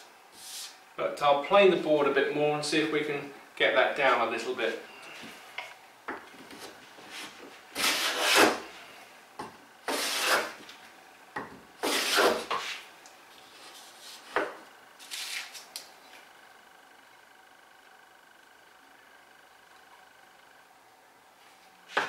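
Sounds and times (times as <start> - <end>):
hand plane cutting shavings: 7.8 - 8.7, 9.9 - 10.6, 11.8 - 12.7.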